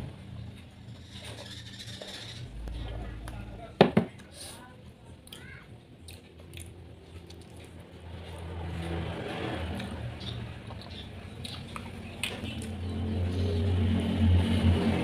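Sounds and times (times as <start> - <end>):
low engine rumble: 0.0 - 15.0
wet biting and chewing: 5.2 - 7.8, 8.4 - 12.8.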